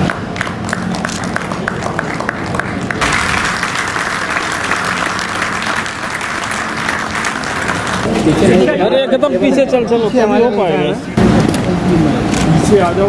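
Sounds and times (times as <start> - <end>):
people clapping in rhythm: 0.0 - 8.1
audience applause: 0.0 - 8.7.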